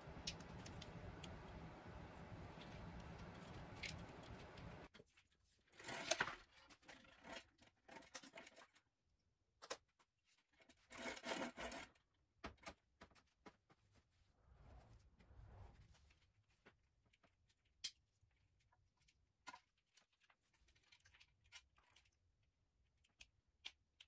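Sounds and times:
steady low hum: 0.0 - 4.9
rustling and rubbing handling: 0.0 - 7.4.

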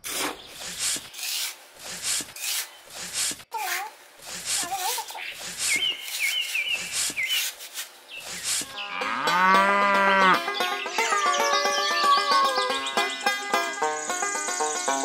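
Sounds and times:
trowel scraping damp sand: 0.0 - 8.8
cow mooing: 8.8 - 10.4
music: 8.8 - 15.0.

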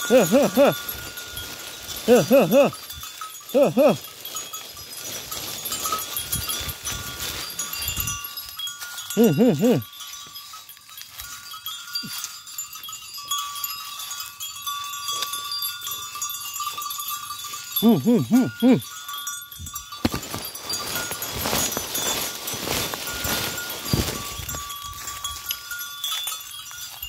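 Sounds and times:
soft rustling: 0.0 - 9.2, 19.9 - 27.0.

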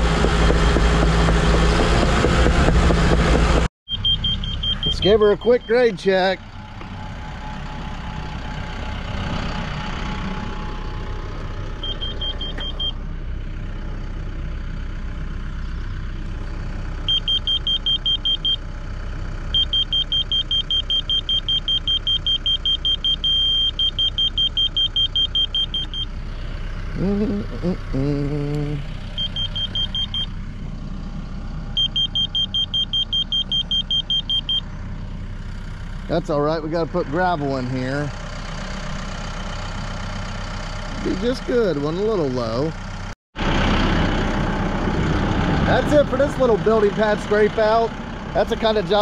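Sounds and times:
steady low rumble: 3.6 - 22.1, 22.8 - 39.8
rapid high beeps: 3.9 - 5.9, 11.8 - 13.0, 19.6 - 26.1, 29.2 - 30.3, 31.8 - 34.6
short steady tone: 11.7 - 13.0.

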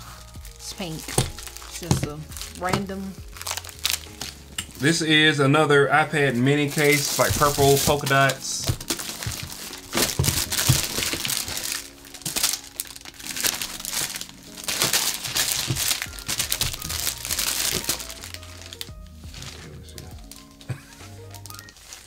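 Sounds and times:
quiet background music: 0.0 - 22.0
plastic packaging crinkling: 0.1 - 5.2, 6.2 - 22.0.

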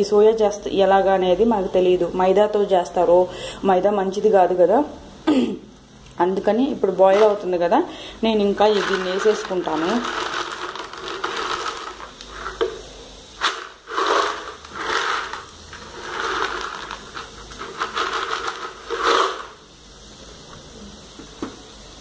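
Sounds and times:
water boiling and bubbling: 8.6 - 20.2.

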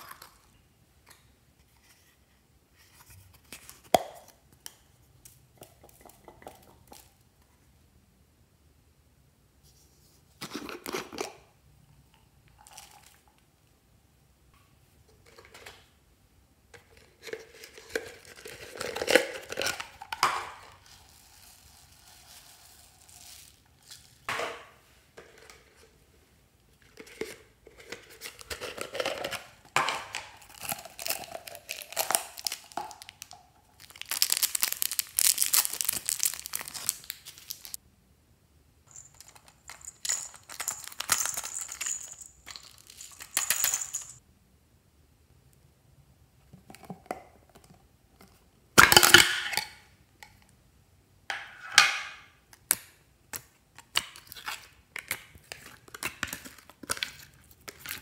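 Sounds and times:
foam beads rustling into glass dish: 20.6 - 24.3, 30.4 - 37.8, 38.9 - 44.2.

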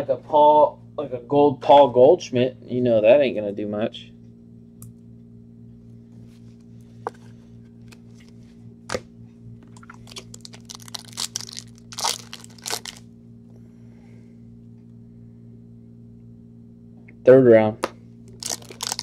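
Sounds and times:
steady low hum: 0.0 - 19.0
foil wrapper tearing and crinkling: 9.8 - 13.0, 18.3 - 19.0.

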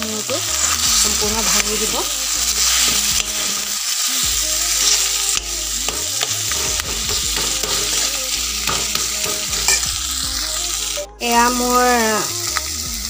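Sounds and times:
frying sizzle: 0.0 - 13.0
ladle scraping a wok: 2.2 - 3.8, 4.7 - 10.2.

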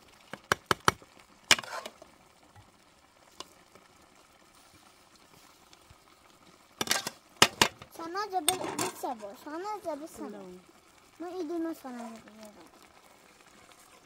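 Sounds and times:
metal ladle knocking on pots: 6.8 - 9.1.

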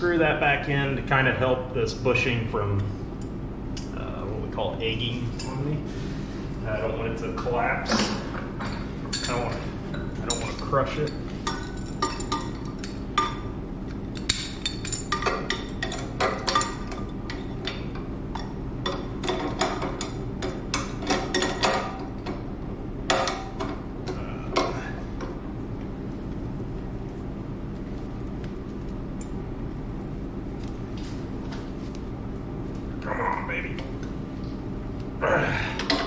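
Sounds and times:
steady low hum: 0.0 - 36.0
wrenches clinking on pipe fittings: 8.6 - 13.3.

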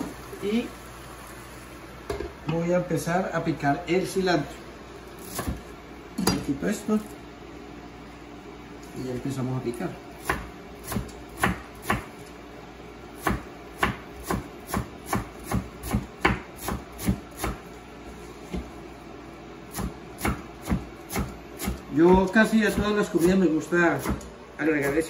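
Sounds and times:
knife chopping on cutting board: 5.2 - 5.6, 10.2 - 12.1, 13.2 - 17.6, 19.7 - 25.0.

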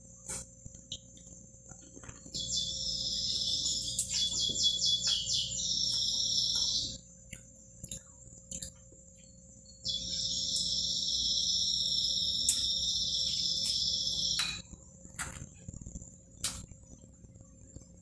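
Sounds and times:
high-pitched buzzing animal call: 2.4 - 7.0, 9.8 - 14.6.

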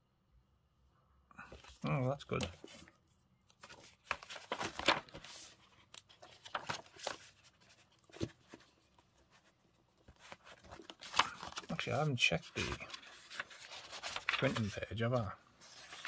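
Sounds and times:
paper and plastic rustling: 3.5 - 16.0.

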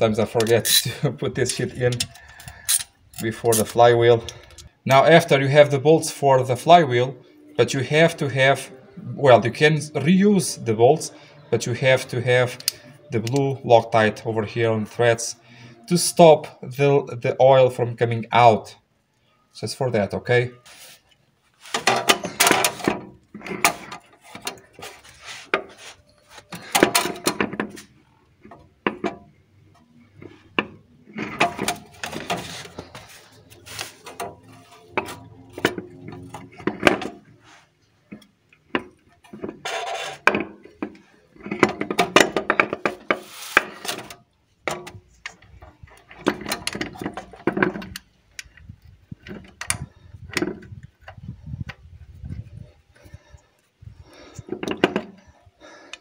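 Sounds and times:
metal clanks and knocks: 21.7 - 25.8, 26.4 - 37.4, 38.0 - 51.3, 54.1 - 56.0.

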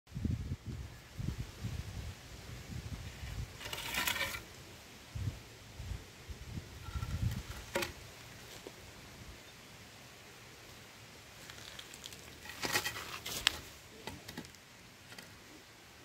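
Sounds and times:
wind buffeting microphone: 0.1 - 4.2, 5.1 - 8.1
wooden plank scraping on concrete: 3.6 - 4.4, 6.8 - 8.0, 12.1 - 14.5.

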